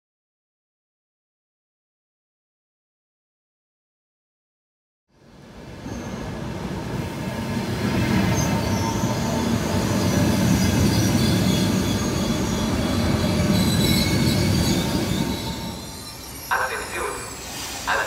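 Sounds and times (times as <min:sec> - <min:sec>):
electric train rumbling past: 0:05.2 - 0:18.0
train wheel squeals: 0:05.8 - 0:06.4, 0:08.0 - 0:16.6.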